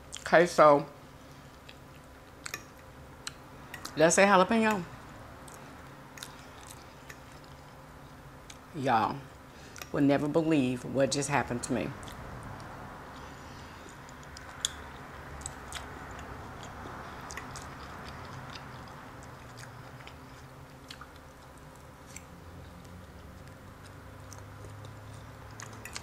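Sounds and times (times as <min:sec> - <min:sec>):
person chewing food: 0:01.3 - 0:04.0, 0:05.4 - 0:08.7, 0:12.0 - 0:26.0.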